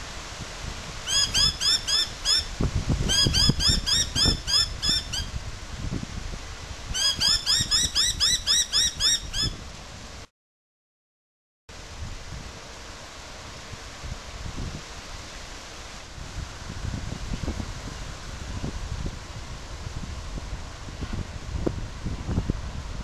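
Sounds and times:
bird calling in sharp notes: 1.1 - 2.5, 3.1 - 5.3, 7.0 - 9.6
microphone handling rumble: 16.2 - 23.0.

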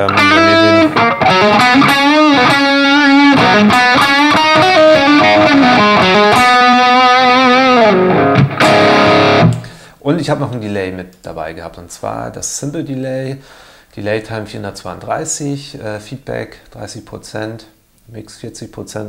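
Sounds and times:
distorted electric guitar lead: 0.0 - 9.8.

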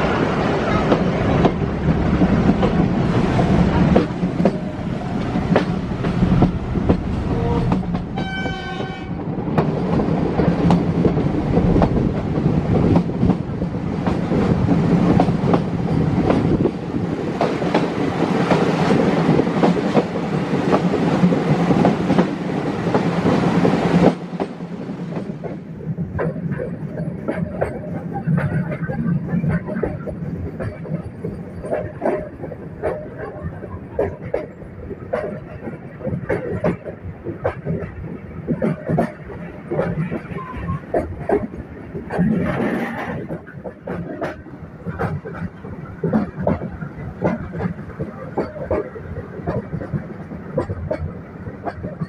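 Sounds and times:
train rumbling: 0.0 - 52.0
wheels clicking over rail joints: 0.7 - 52.0
locomotive horn blast: 7.3 - 9.2.

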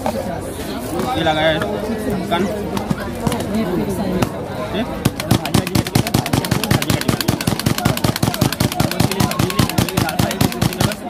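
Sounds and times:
vegetable cutter blade clacking: 5.1 - 11.0.

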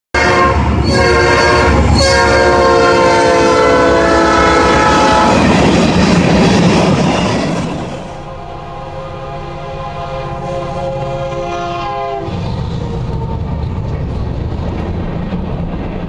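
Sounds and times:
train air horn chord: 0.2 - 5.4, 8.1 - 12.4
train wheels rolling on rails: 0.6 - 9.0, 10.2 - 16.0.

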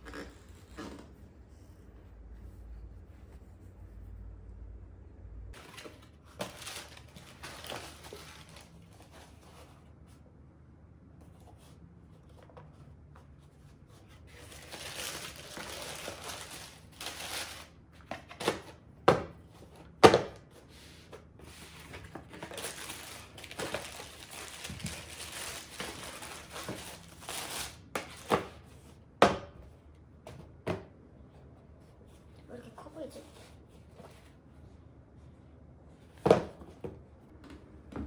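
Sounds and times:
tissue paper rustling: 5.6 - 9.6, 14.1 - 17.7, 21.5 - 28.3
knocks of shoes and box: 36.2 - 37.0.

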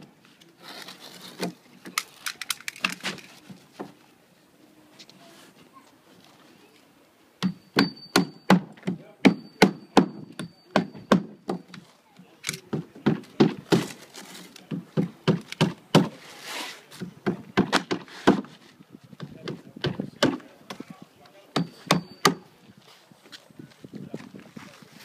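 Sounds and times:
nails striking shingles: 7.4 - 11.8, 12.4 - 16.2, 17.0 - 18.6, 19.2 - 20.8, 21.5 - 22.5.

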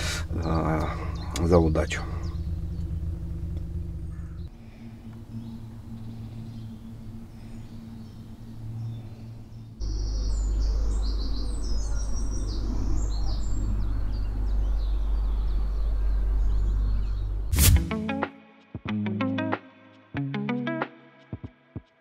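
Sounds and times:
birds chirping and singing: 0.0 - 17.5
low steady hum: 0.0 - 17.8.

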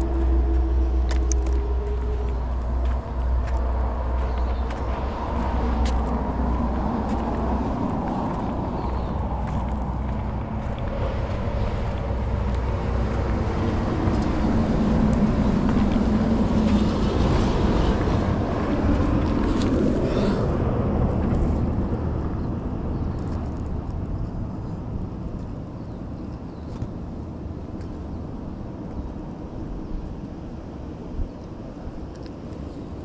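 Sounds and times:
motor engine passing by: 0.0 - 22.4.

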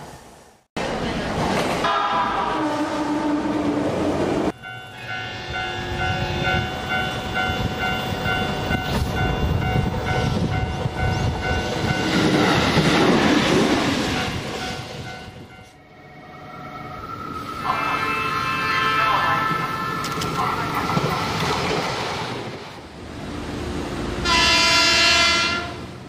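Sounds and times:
train passing rumble: 0.0 - 26.0
train horn blast: 1.8 - 3.8, 4.9 - 6.7, 24.2 - 25.9.

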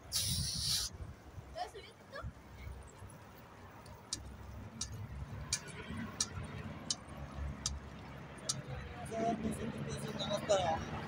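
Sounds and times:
wind: 0.0 - 11.0.

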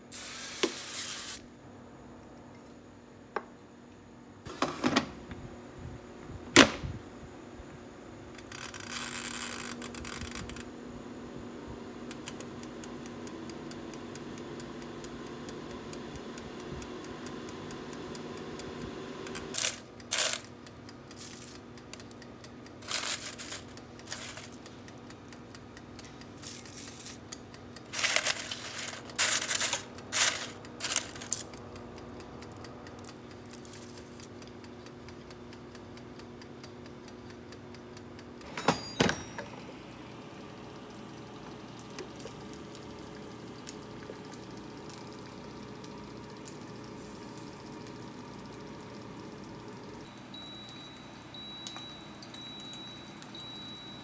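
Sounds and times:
small hard objects clicking: 19.5 - 38.3.

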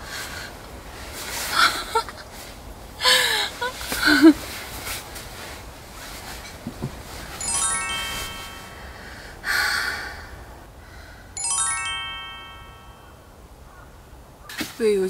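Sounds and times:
breathy rush of noise: 0.0 - 13.2
twinkling chime: 7.3 - 9.2, 11.4 - 13.3.

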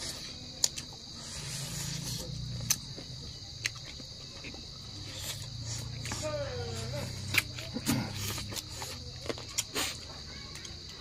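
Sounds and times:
crickets chirring: 0.0 - 11.0.

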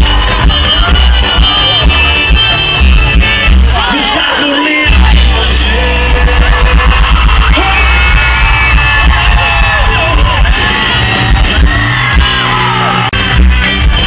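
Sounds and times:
live band music from a pa: 0.0 - 14.0
man singing: 0.1 - 8.5.

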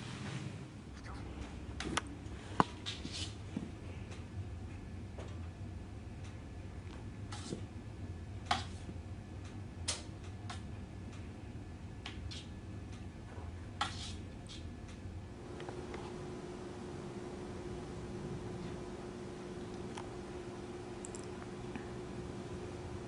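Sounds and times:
low room hum: 0.0 - 23.0
faint clicks and taps: 8.4 - 11.3.

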